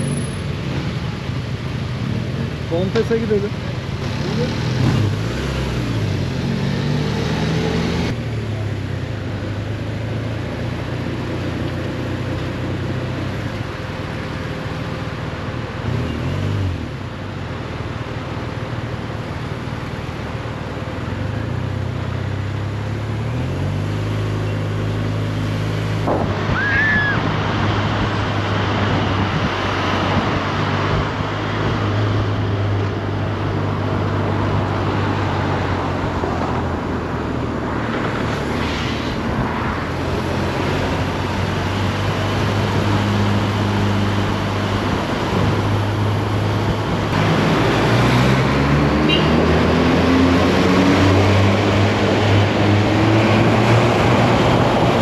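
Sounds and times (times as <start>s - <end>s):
vehicle engine revving: 2.0s - 8.4s, 21.2s - 55.0s
steady rushing noise: 25.3s - 49.0s.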